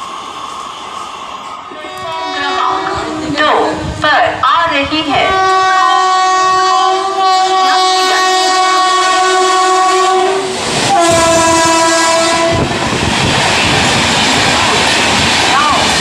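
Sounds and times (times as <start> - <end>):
train coaches rushing and clattering: 0.0 - 16.0
locomotive horn blast: 1.7 - 3.4, 5.2 - 12.8.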